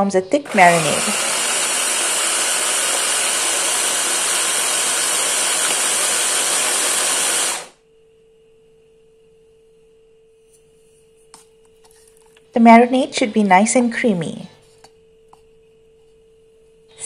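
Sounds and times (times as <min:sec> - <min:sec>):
electric blender running: 0:00.4 - 0:07.8.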